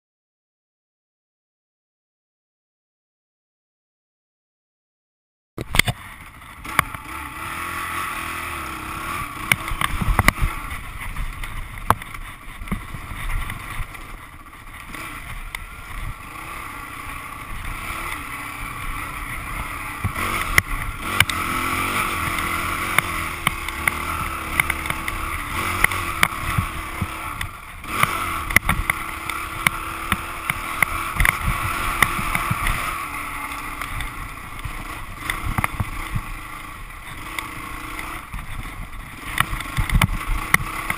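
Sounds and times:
dirt bike engine: 5.6s - 40.9s.

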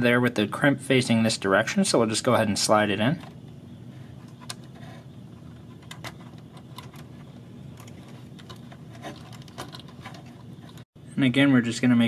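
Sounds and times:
low room hum: 0.0s - 12.0s
wire rustle: 3.9s - 10.9s.

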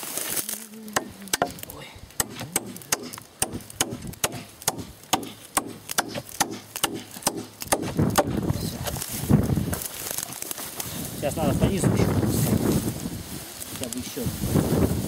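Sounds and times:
hand tool striking wood: 1.0s - 8.4s.

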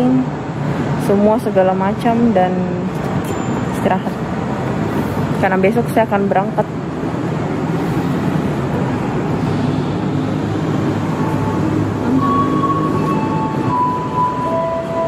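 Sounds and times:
electric train rumbling: 0.0s - 15.0s.

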